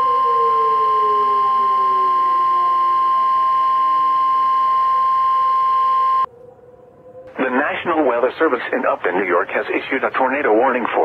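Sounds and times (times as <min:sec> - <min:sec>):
low tones gliding downward: 0:00.0 - 0:05.2
loud electronic alarm tone: 0:00.0 - 0:06.3.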